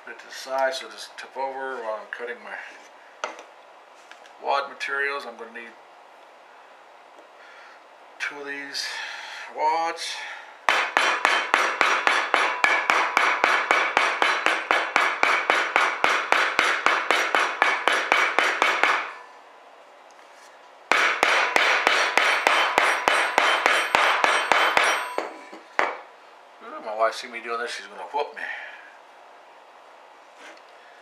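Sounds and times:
hammer striking metal punch: 10.7s - 19.2s, 20.9s - 26.0s.

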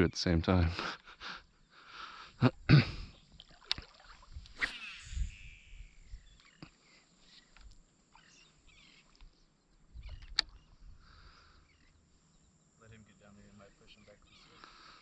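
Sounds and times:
water splashing and sloshing: 3.3s - 4.6s.

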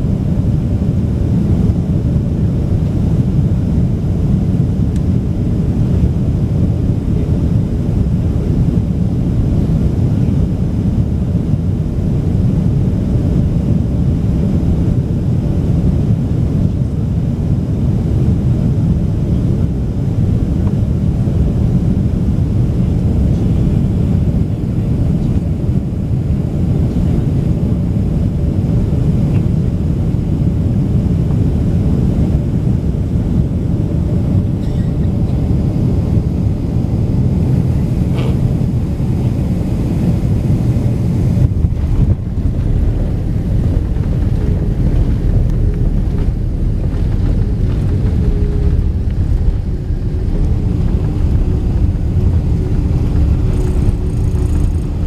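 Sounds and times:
jet engine and airflow rumble: 0.0s - 55.0s
faint wavering engine tone: 34.0s - 55.0s.

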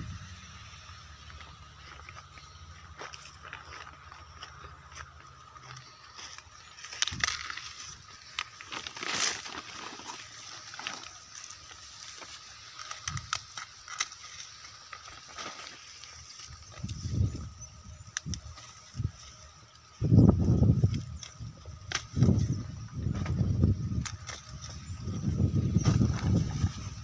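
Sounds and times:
rustling dry corn stalks: 0.0s - 27.0s
plastic sack rustling: 7.0s - 14.0s.

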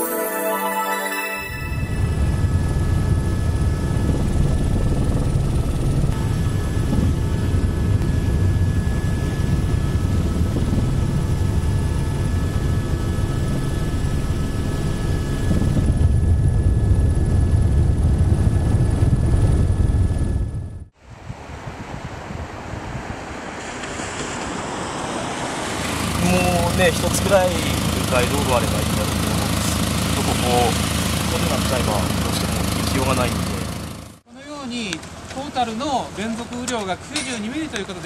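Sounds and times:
turbine whine: 1.5s - 34.2s
helicopter rotor rumble: 2.0s - 20.9s, 25.7s - 34.2s.

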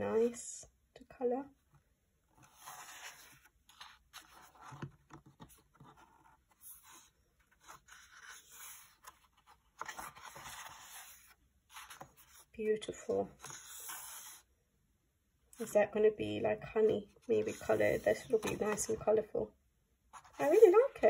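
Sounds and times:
paper pages rustling: 2.4s - 12.5s, 13.4s - 14.4s, 17.3s - 19.1s, 20.2s - 21.0s.

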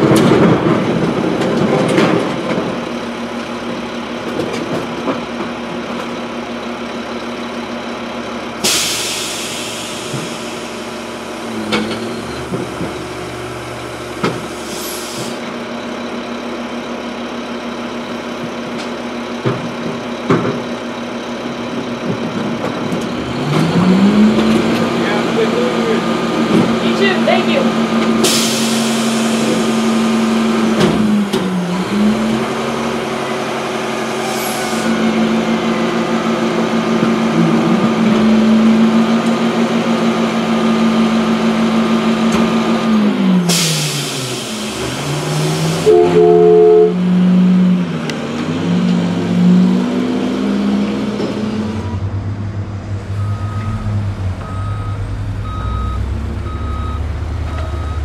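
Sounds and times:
truck engine running: 0.0s - 58.0s
air brake hiss: 8.6s - 11.1s, 14.6s - 15.5s, 28.2s - 29.5s, 43.5s - 44.9s
reversing beeps: 53.2s - 58.0s.

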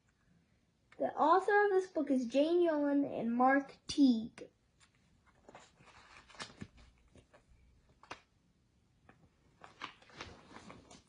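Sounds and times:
book pages rustling: 4.7s - 8.3s, 9.0s - 11.0s.

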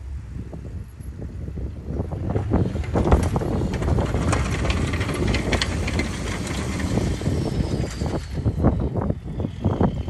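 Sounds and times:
diesel truck rumbling past: 1.3s - 10.0s.

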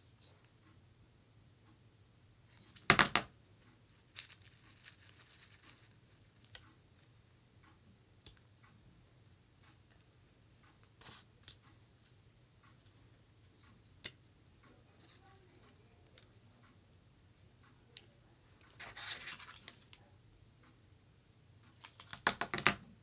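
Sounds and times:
dried petals rustling and tearing: 3.9s - 6.6s, 15.0s - 16.5s.

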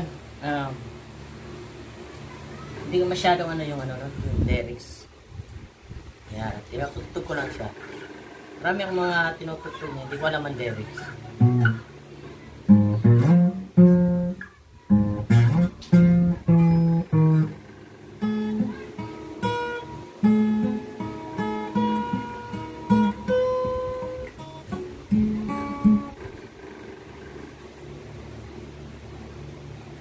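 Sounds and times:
fingerpicked acoustic guitar: 7.2s - 30.0s.

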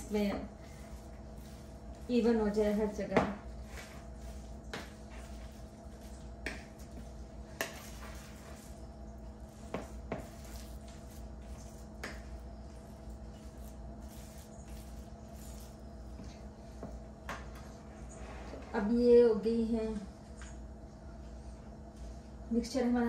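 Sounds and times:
utensil squishing wet mixture: 0.0s - 17.0s
steady low hum: 0.0s - 23.0s.

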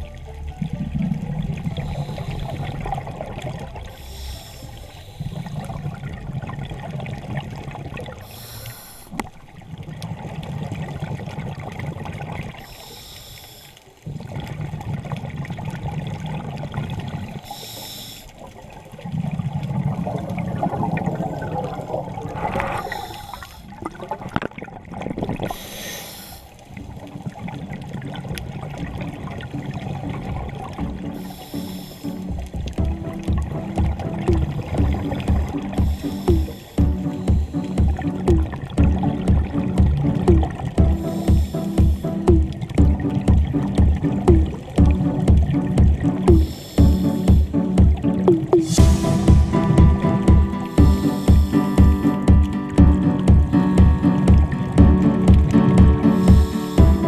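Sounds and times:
bubbling exhale: 0.9s - 9.3s, 19.2s - 24.4s, 25.1s - 26.6s, 31.0s - 32.4s, 34.3s - 38.7s, 40.3s - 42.6s, 46.2s - 47.6s, 48.5s - 52.2s, 56.0s - 57.0s
hissing regulator inhale: 1.7s - 3.0s, 3.9s - 5.8s, 8.2s - 9.2s, 12.6s - 14.0s, 17.4s - 18.4s, 22.7s - 23.8s, 25.5s - 26.6s, 31.2s - 32.4s, 35.8s - 37.8s, 41.0s - 42.3s, 46.3s - 47.5s, 50.6s - 51.8s, 56.1s - 56.9s.

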